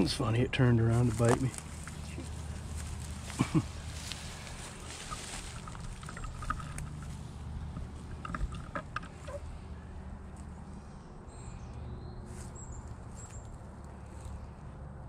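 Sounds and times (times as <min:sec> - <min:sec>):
sharp rustling clicks: 0:01.2 - 0:09.7.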